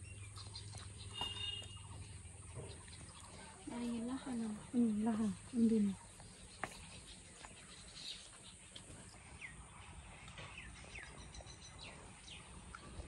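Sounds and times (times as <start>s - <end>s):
faint bird chirps: 0.0s - 4.0s.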